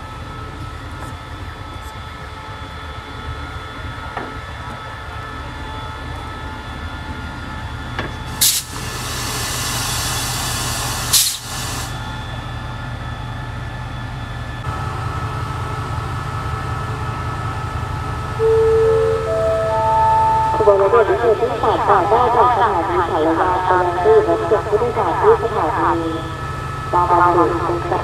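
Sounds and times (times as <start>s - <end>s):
diesel locomotive idling: 0.0s - 28.0s
air brake blasts: 8.3s - 12.0s
air hiss: 8.4s - 12.0s
chime-like tones: 18.4s - 21.3s.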